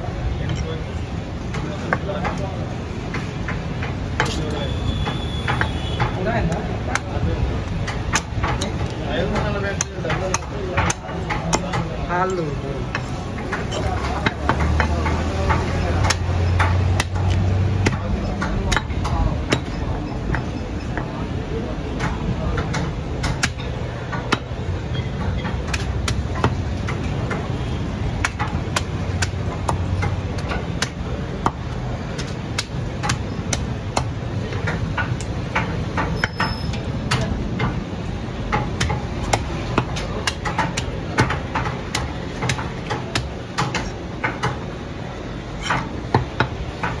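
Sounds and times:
cleaver chopping on wooden block: 6.9s - 11.9s, 12.9s - 21.1s, 25.6s - 27.4s, 28.2s - 37.8s, 38.5s - 44.6s, 45.6s - 47.0s.

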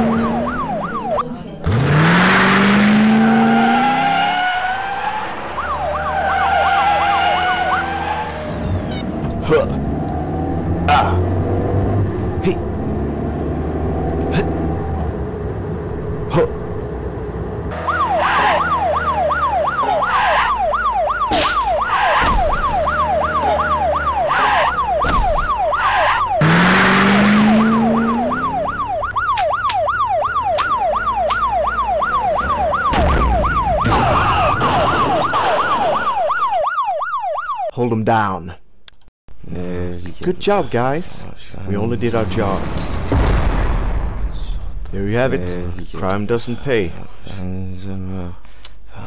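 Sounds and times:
police siren yelping: 0.0s - 11.6s, 17.7s - 37.7s.

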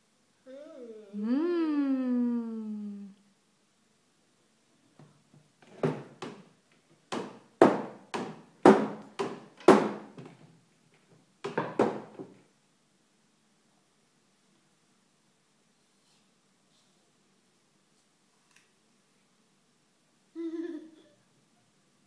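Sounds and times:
hand knocking on wooden furniture: 7.1s - 10.0s, 11.5s - 12.3s.

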